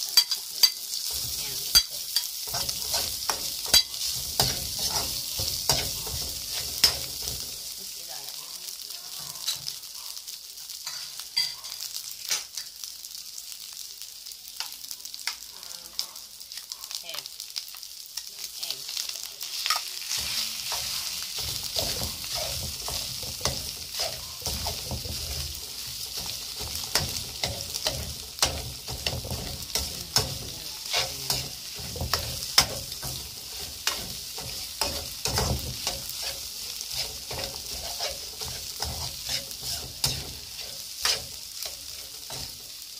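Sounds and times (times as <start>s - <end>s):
food sizzling in oil: 0.0s - 42.9s
spatula scraping a metal pan: 0.1s - 7.5s, 19.6s - 42.7s.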